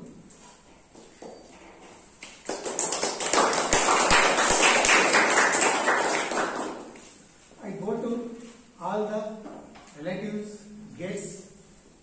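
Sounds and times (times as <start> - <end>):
audience applauding: 2.4 - 7.1.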